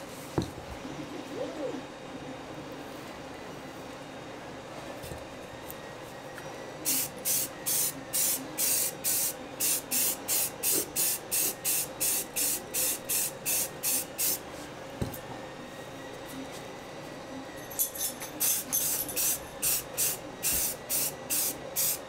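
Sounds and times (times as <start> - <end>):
aerosol spray bursts: 6.9 - 14.4, 19.6 - 22.0.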